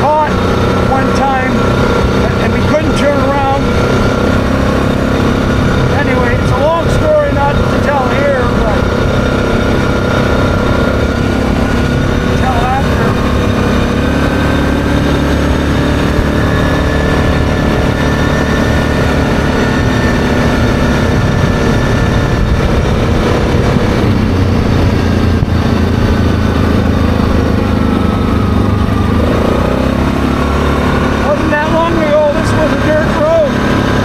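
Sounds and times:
atv engine running: 0.0 - 34.0
tyres on gravel road: 0.0 - 34.0
wind noise: 0.0 - 34.0.

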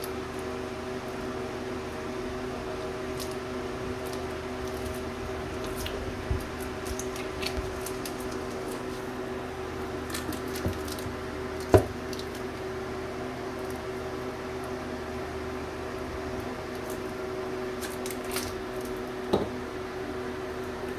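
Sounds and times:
mechanical hum: 0.0 - 20.9
wax squishing and scraping: 2.0 - 12.8, 16.2 - 19.5.

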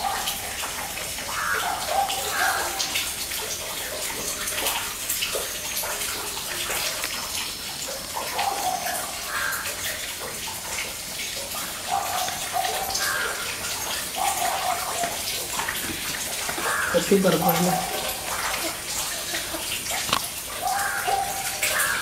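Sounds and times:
hiss like running water: 0.0 - 22.0
hens clucking: 11.6 - 21.5.

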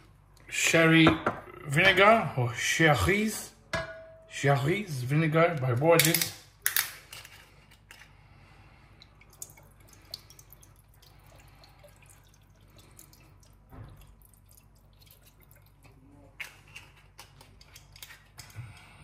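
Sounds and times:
vinegar pouring and dripping: 8.8 - 16.0.

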